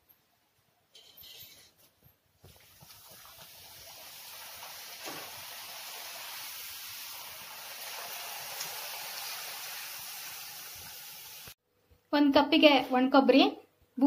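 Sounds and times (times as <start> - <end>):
hot oil sizzling: 2.4 - 11.6.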